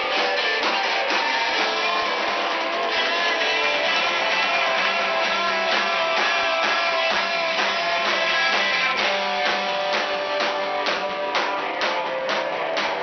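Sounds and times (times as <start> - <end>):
held guitar notes: 0.0 - 13.0
live band playing loudly: 0.0 - 13.0
steady drum beat: 0.0 - 13.0.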